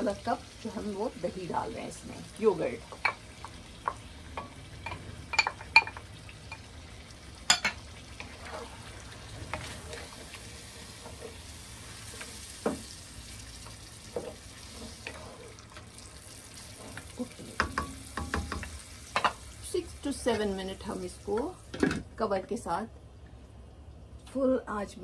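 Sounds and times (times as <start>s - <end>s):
chicken sizzling in a pan: 0.0s - 21.8s
wooden spoon scraping a pan: 8.2s - 12.9s, 14.0s - 15.9s
spoon knocking against pan: 17.5s - 19.4s.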